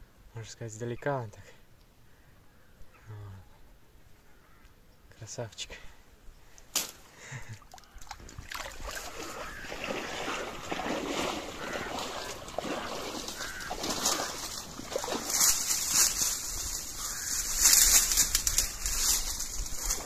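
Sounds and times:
dry reeds rustling: 0:06.5 - 0:08.1, 0:08.8 - 0:20.0
water splashing: 0:07.6 - 0:18.2.

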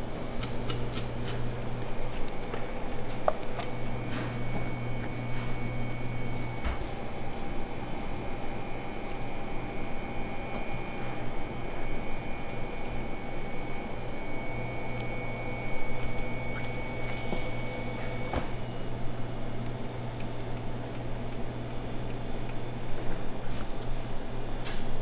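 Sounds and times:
mechanical hum: 0:00.0 - 0:25.0.

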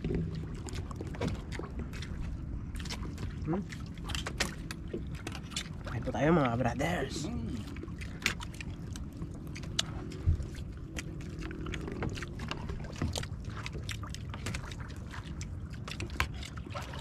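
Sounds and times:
low rumble of wind and water: 0:00.0 - 0:17.0.

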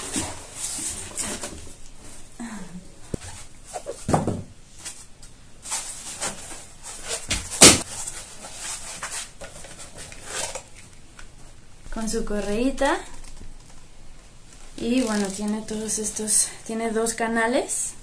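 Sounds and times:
cardboard and foam rustling: 0:00.0 - 0:02.3, 0:03.2 - 0:10.9, 0:14.6 - 0:16.3.

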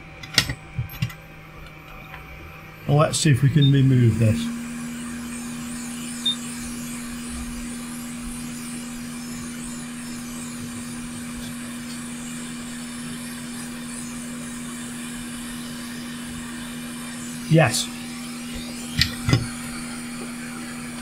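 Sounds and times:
blower hum: 0:00.0 - 0:21.0
hot air station hissing: 0:02.3 - 0:21.0
short high beep: 0:03.6 - 0:05.2.

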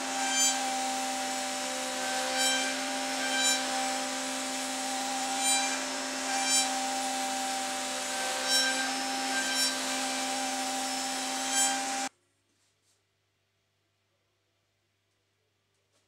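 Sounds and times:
router spindle whine cutting wood: 0:00.0 - 0:12.1.

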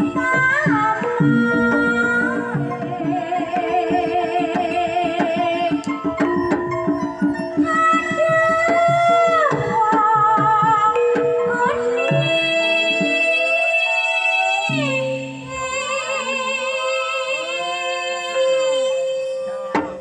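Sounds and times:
woman singing with vibrato: 0:00.0 - 0:06.6, 0:07.2 - 0:20.0
metallophone and gong tones: 0:10.9 - 0:20.0.

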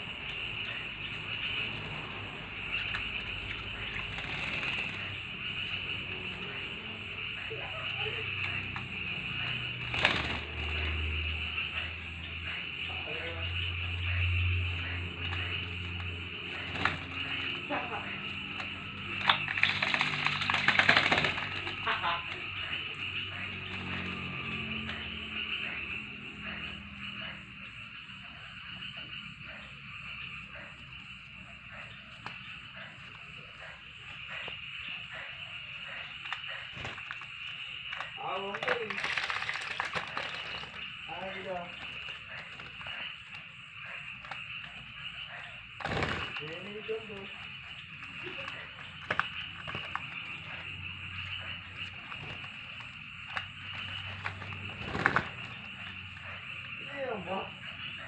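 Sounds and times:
frogs croaking: 0:00.0 - 0:58.0
high-pitched insect drone: 0:00.0 - 0:58.0
bird splashing water: 0:13.6 - 0:26.9, 0:31.9 - 0:58.0.

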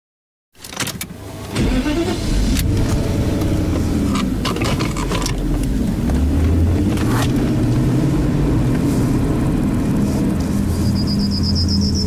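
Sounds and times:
car engine running: 0:01.1 - 0:12.0.

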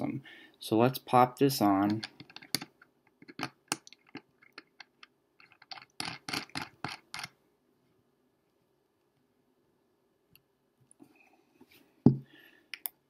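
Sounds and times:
metallic clicks of screwing on: 0:01.8 - 0:07.3.

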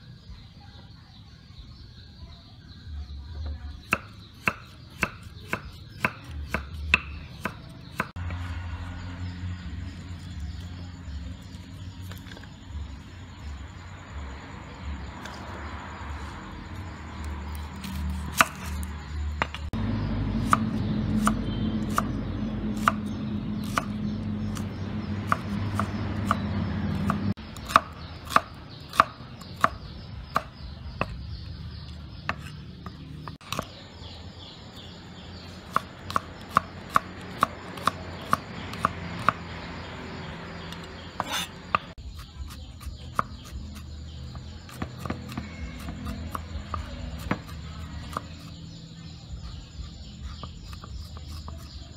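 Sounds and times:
knife chopping on wooden board: 0:03.8 - 0:08.4, 0:17.5 - 0:19.7, 0:22.7 - 0:31.2, 0:32.2 - 0:33.7, 0:35.7 - 0:39.4, 0:40.8 - 0:48.6, 0:50.2 - 0:51.8.

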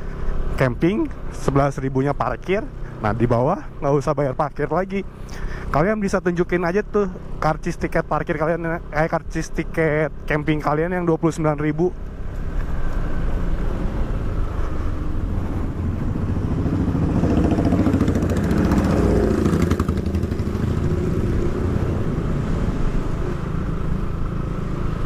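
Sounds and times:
motorcycle engine running: 0:12.0 - 0:22.3.

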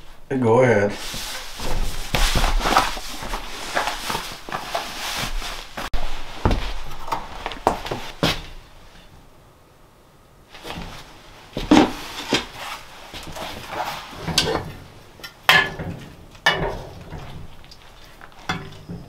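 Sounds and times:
footsteps on wooden floor: 0:01.0 - 0:08.6.

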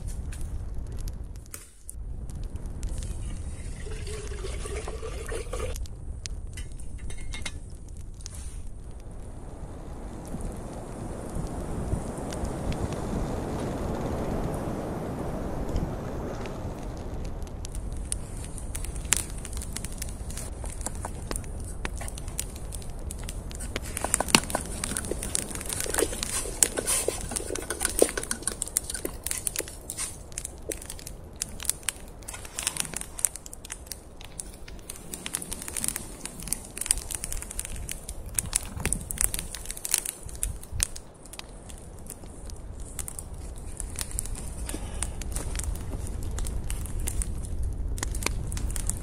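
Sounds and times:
campfire crackling and popping: 0:00.0 - 0:49.0.

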